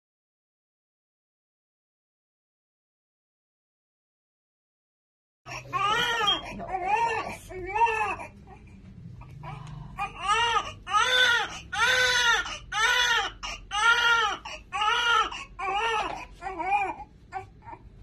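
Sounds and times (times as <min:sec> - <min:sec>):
newborn baby crying: 0:05.5 - 0:18.0.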